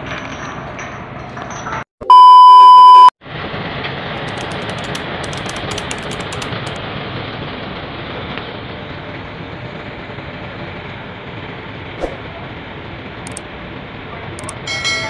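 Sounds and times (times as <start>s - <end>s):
diesel engines running: 4.1s - 6.8s, 8.8s - 14.6s.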